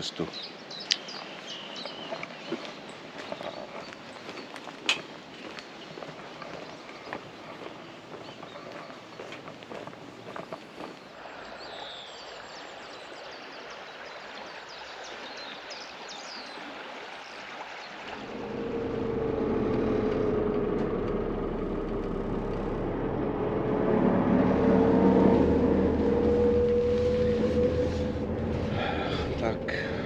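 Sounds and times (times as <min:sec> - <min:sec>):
bus engine and road noise: 0:18.2 - 0:30.0.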